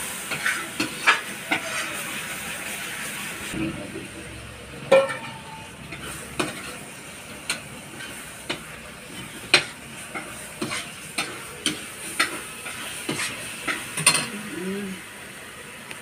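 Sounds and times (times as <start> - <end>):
frying sizzle: 0.0 - 16.0
spoon scraping metal pan: 4.9 - 14.3.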